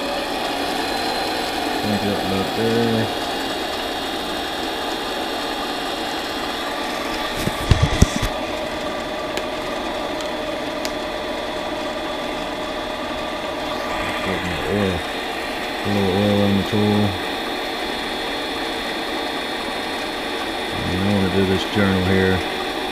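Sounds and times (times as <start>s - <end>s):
lathe motor whining: 0.0s - 22.9s.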